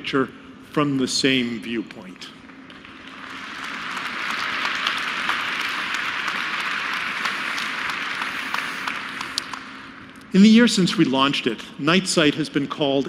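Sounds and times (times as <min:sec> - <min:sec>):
large audience applauding: 0:02.7 - 0:09.9.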